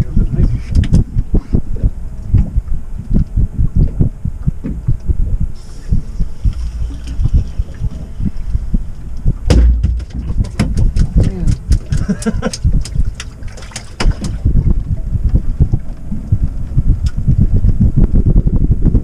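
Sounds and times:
wind buffeting microphone: 0:00.0 - 0:19.0
waves slapping boat hull: 0:03.8 - 0:17.8
loud thud: 0:09.4 - 0:10.9.

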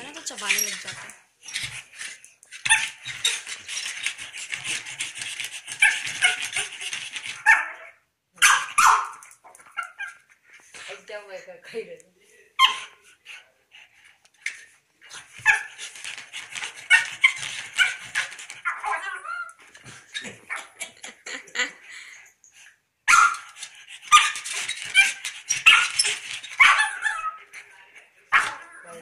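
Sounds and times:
dog whining and barking: 0:18.6 - 0:19.6, 0:24.1 - 0:27.4.

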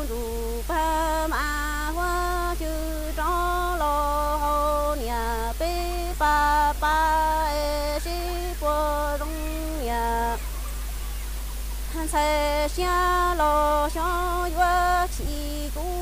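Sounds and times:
woman singing unaccompanied: 0:00.0 - 0:11.0, 0:11.7 - 0:16.0
steady low hum: 0:00.0 - 0:16.0.

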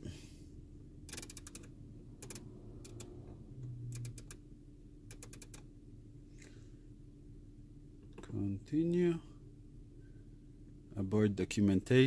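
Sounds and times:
faint low hum: 0:00.0 - 0:12.0
rotary knob detent clicks: 0:01.1 - 0:03.2, 0:03.9 - 0:04.4, 0:05.1 - 0:05.7.

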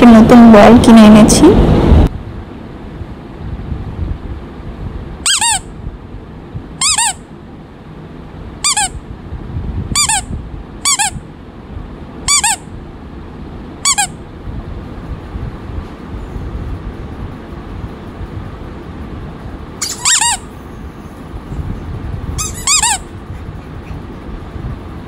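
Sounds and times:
rubber toy squeaking: 0:05.3 - 0:05.6, 0:06.8 - 0:07.2, 0:08.6 - 0:09.0, 0:10.0 - 0:11.2, 0:12.3 - 0:12.6, 0:13.8 - 0:14.2, 0:19.8 - 0:20.5, 0:22.4 - 0:24.0.

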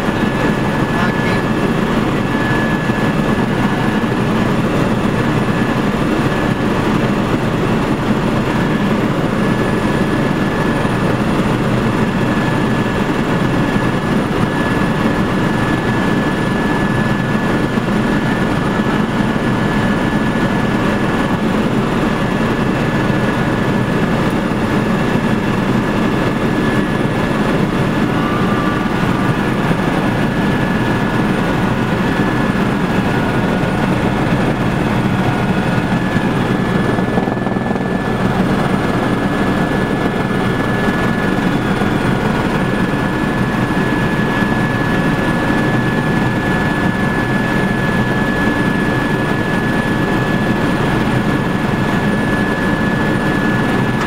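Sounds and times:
helicopter engine and rotor noise: 0:00.0 - 0:54.0.

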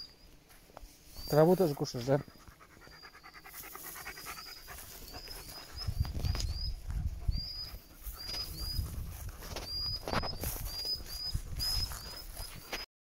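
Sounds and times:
dog rustling and snuffling: 0:00.9 - 0:12.8
dog panting: 0:01.8 - 0:10.0.

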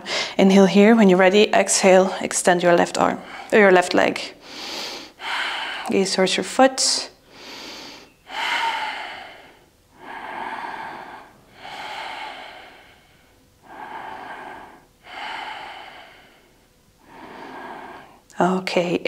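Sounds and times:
woman breathing loudly: 0:00.0 - 0:00.4, 0:04.4 - 0:05.9, 0:07.2 - 0:18.3.

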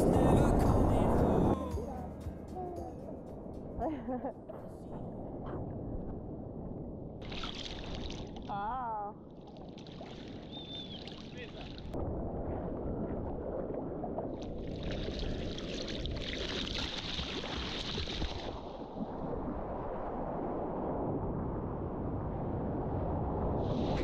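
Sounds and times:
rumbling wind and water: 0:00.0 - 0:24.0.

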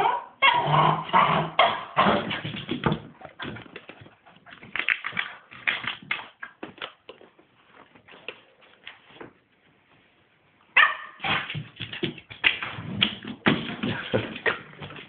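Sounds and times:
puppy playing noises: 0:02.0 - 0:06.9.

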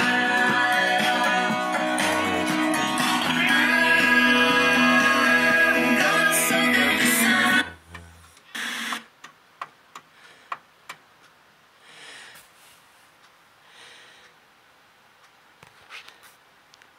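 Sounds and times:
music from hi-fi: 0:00.0 - 0:07.8.

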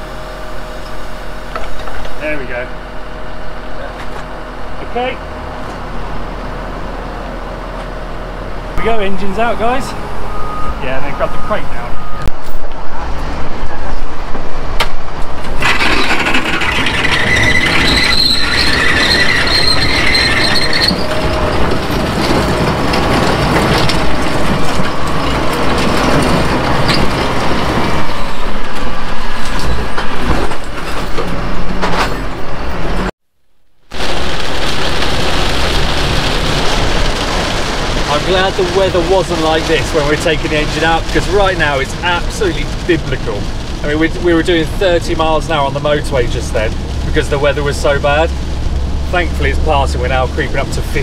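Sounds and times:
steady high whine: 0:00.0 - 0:15.6
diesel engine under load: 0:00.0 - 0:33.2, 0:33.9 - 0:51.0
road and rain noise in vehicle: 0:00.0 - 0:51.0.

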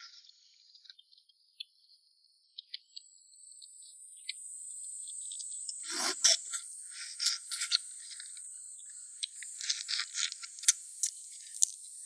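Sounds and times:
insects droning: 0:02.5 - 0:12.0.

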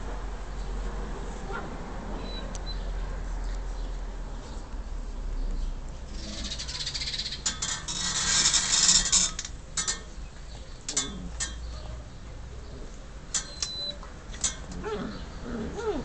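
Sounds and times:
dogs snarling: 0:14.6 - 0:16.0.

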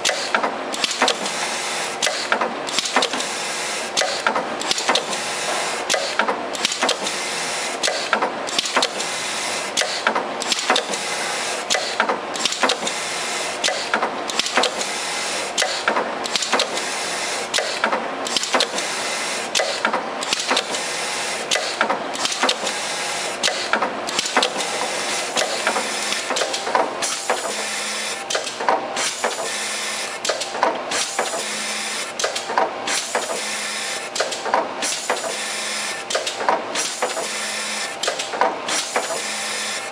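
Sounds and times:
labeling machine whirring and clicking: 0:00.0 - 0:39.9.

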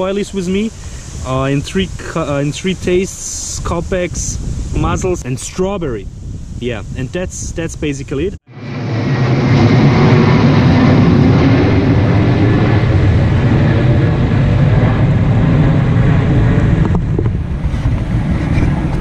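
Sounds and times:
military airplane engines roaring: 0:08.0 - 0:19.0.

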